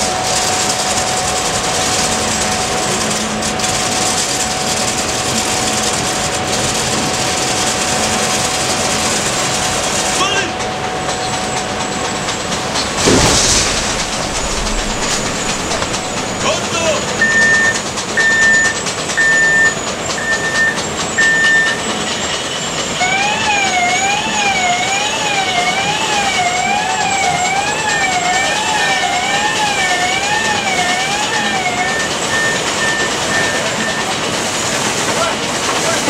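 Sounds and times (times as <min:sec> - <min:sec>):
machinery noise: 0:00.0 - 0:36.0
warbling siren: 0:10.7 - 0:17.8, 0:22.8 - 0:34.1
alarm beeper: 0:13.1 - 0:21.8.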